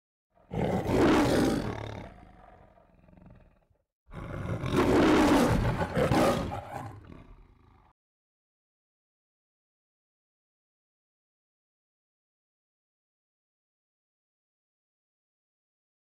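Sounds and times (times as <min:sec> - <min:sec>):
lion roaring: 0:00.4 - 0:07.9.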